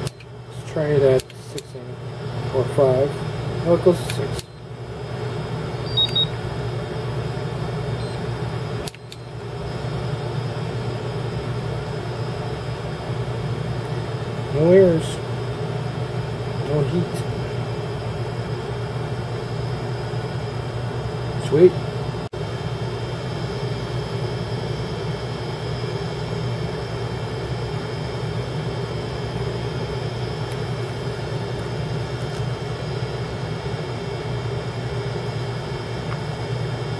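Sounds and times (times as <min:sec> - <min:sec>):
constant low hum: 0:00.0 - 0:36.9
cooling fan running: 0:00.0 - 0:36.9
click: 0:01.2 - 0:01.7, 0:04.0 - 0:04.5, 0:08.8 - 0:09.3
high electronic beep: 0:05.8 - 0:06.3.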